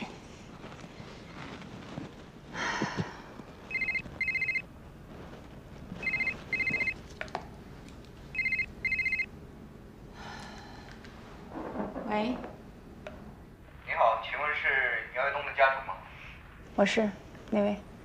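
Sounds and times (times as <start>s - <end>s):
phone ringtone beeps: 3.7s - 4.6s, 6.0s - 7.0s, 8.4s - 9.3s.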